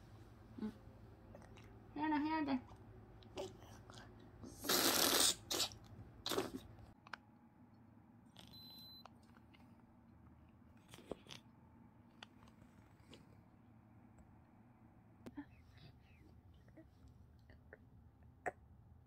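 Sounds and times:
nasal aspirator suction: 0:04.6 - 0:06.6.

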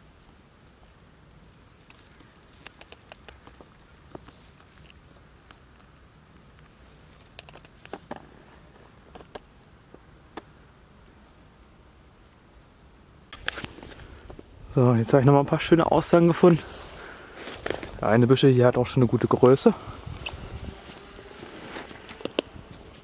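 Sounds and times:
faint ticks and crackles: 0:00.0 - 0:11.2.

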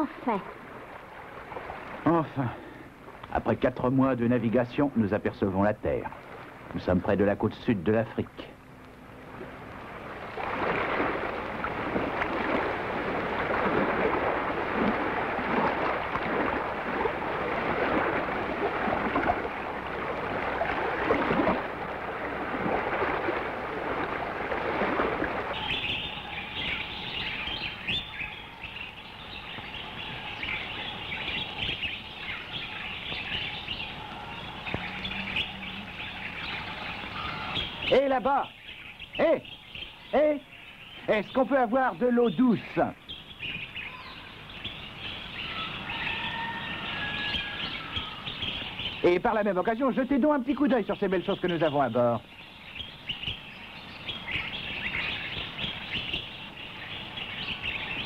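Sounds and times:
waves rushing: 0:00.0 - 0:03.2, 0:09.1 - 0:27.9
birds chirping: 0:00.0 - 0:58.0.

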